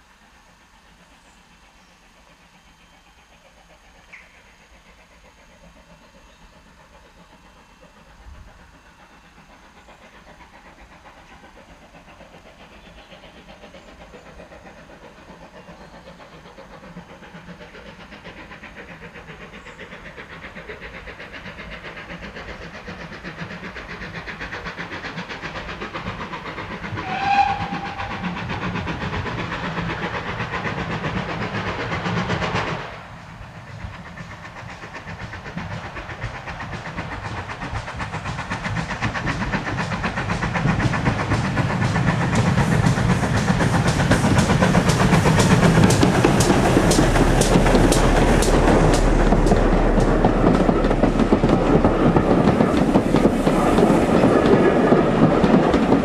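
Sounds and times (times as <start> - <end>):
steam locomotive exhaust beat: 0.0 - 56.0
steam whistle blast: 27.0 - 28.2.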